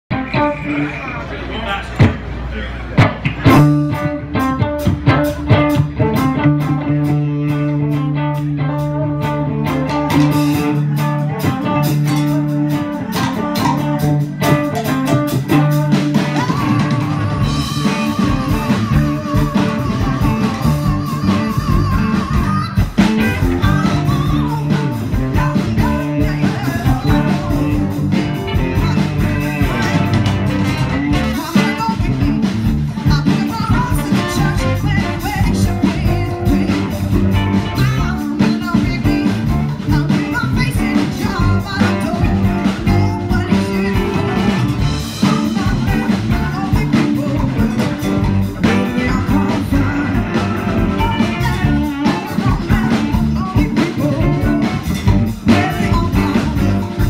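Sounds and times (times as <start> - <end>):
guitar: 0.0 - 57.0
saxophone: 3.9 - 57.0
woman singing: 4.0 - 30.2, 30.9 - 57.0
trombone: 23.2 - 32.6, 33.6 - 38.3, 41.8 - 57.0
trumpet: 26.7 - 32.4, 33.6 - 36.7.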